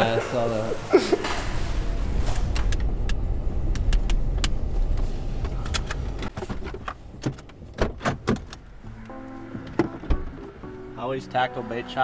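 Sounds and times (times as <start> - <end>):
truck road rumble from inside cab: 1.2 - 10.6.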